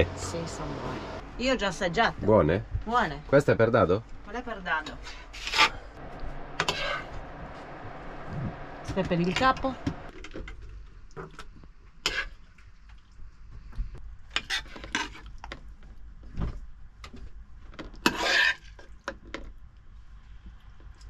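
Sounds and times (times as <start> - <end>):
cutlery scraping on plate: 5.4 - 5.8, 6.6 - 7.1, 12.1 - 12.3, 18.1 - 18.8.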